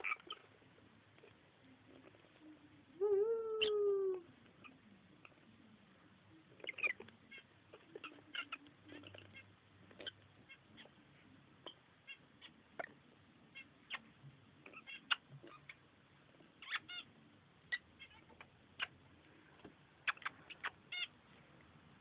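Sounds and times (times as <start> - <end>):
lovebirds chirping: 0.0 - 0.5, 2.4 - 4.9, 6.5 - 11.0, 11.6 - 15.8, 20.0 - 21.2.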